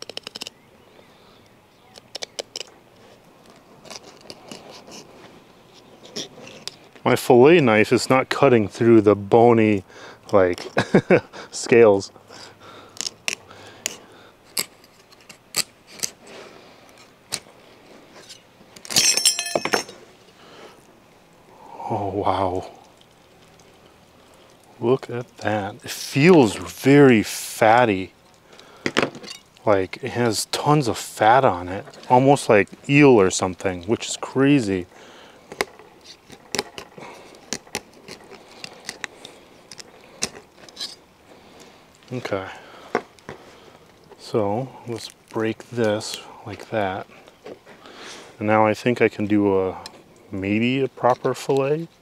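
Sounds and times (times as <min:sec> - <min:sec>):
knife crunching through fish scales: 0:13.0 - 0:16.2
knife scraping fish scales: 0:13.0 - 0:16.2, 0:37.5 - 0:41.0.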